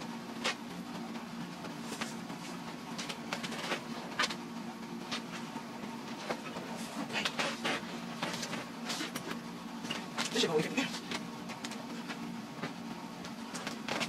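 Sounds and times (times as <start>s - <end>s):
steady low hum: 0.0s - 14.0s
rustling and scraping of suitcase: 1.8s - 4.4s, 6.2s - 12.8s.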